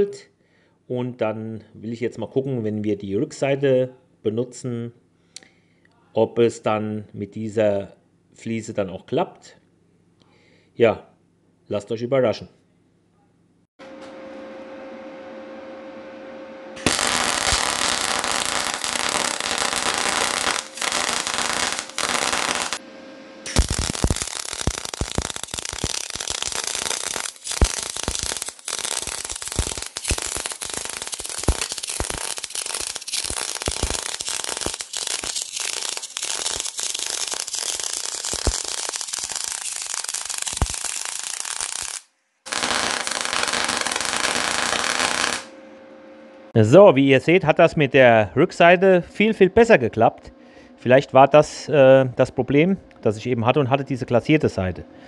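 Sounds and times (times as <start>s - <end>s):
steady electric hum: 13.8s - 40.8s, 42.5s - 55.0s
welding arc crackling: 16.8s - 22.8s, 23.4s - 45.5s.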